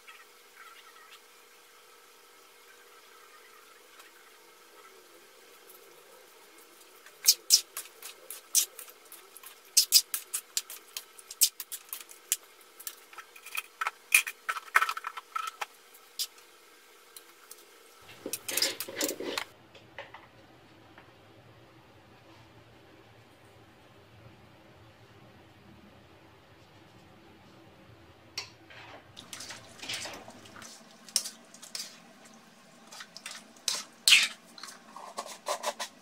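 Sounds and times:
spoon scraping metal wok: 0:18.2 - 0:19.5, 0:29.4 - 0:32.0, 0:32.9 - 0:36.0.

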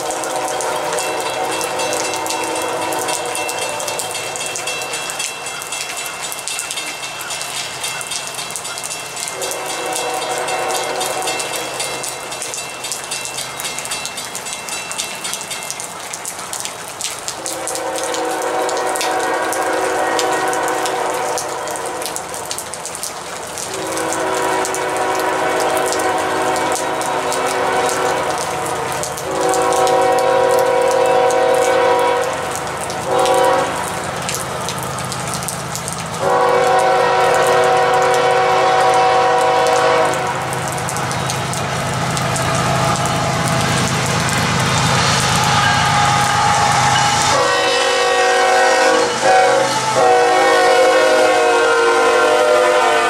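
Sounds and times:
locomotive air horn blasts: 0:00.0 - 0:04.9, 0:09.3 - 0:12.0, 0:17.4 - 0:22.2, 0:23.7 - 0:33.9, 0:36.2 - 0:40.6, 0:44.9 - 0:53.0
rain hiss: 0:00.0 - 0:53.0.

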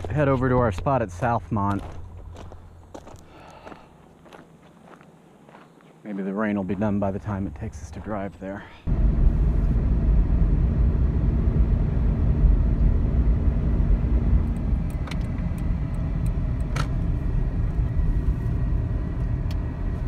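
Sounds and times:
faint hum: 0:07.2 - 0:20.0
engine and tyre rumble: 0:08.9 - 0:20.0.

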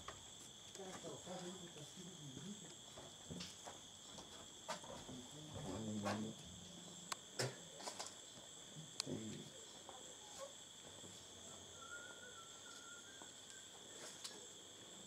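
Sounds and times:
insects chirping chorus: 0:00.0 - 0:15.0.

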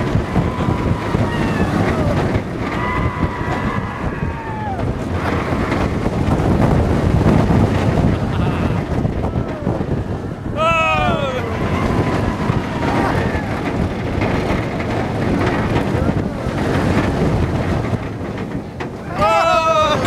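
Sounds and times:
riders screaming: 0:00.0 - 0:05.6, 0:10.5 - 0:13.7, 0:19.0 - 0:20.0
roller coaster train rumble: 0:00.0 - 0:20.0
wind blasting microphone: 0:00.0 - 0:20.0.

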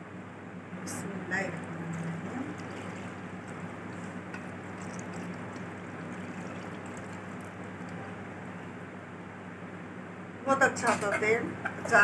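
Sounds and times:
oil pouring trickle: 0:01.5 - 0:08.8.

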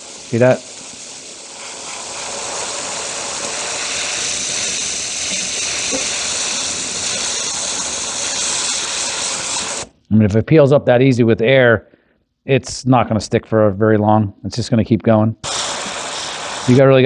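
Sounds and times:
compressed air hissing: 0:00.0 - 0:10.0, 0:15.4 - 0:17.0.

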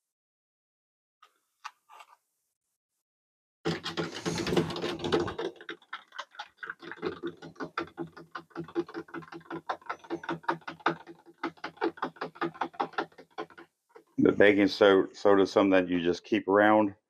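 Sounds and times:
spoon stirring in plastic cup: 0:03.7 - 0:14.2.

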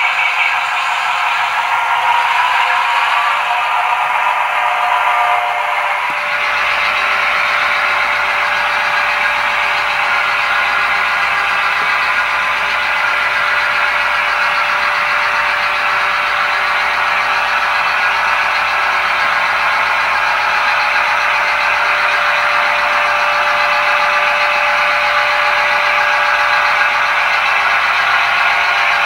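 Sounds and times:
model train diesel engine sound: 0:00.0 - 0:29.0
wheels rolling on track: 0:05.8 - 0:29.0.

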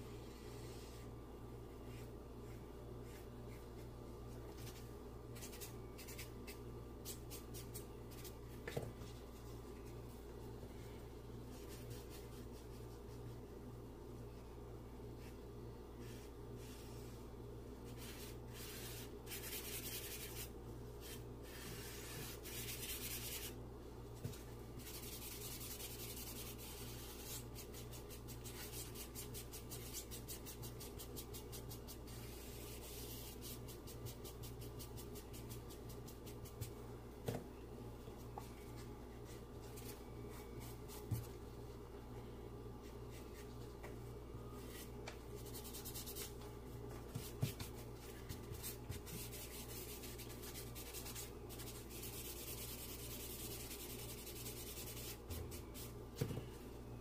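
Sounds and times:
charcoal rubbed on paper: 0:17.9 - 0:23.5, 0:24.8 - 0:36.6, 0:48.0 - 0:56.0.

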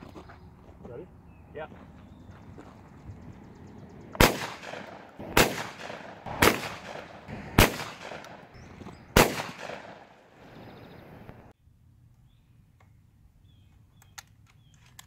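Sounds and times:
shotgun shots with echo: 0:04.2 - 0:08.5, 0:09.1 - 0:10.2.

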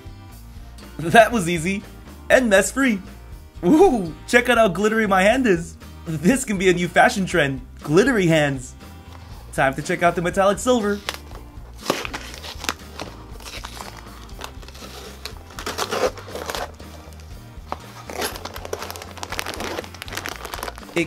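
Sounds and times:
background music: 0:00.0 - 0:21.0
cardboard and plastic rustling: 0:11.0 - 0:21.0.

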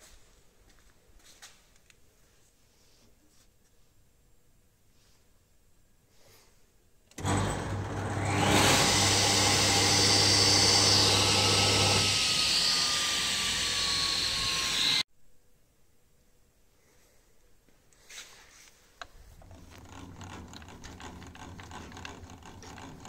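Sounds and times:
machine winding down whine: 0:07.2 - 0:15.0
saw motor humming and whooshing: 0:07.2 - 0:15.0.

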